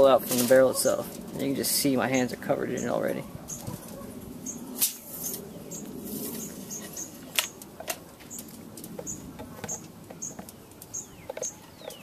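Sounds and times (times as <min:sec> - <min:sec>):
bird chirps: 0:02.2 - 0:07.3, 0:08.3 - 0:12.0.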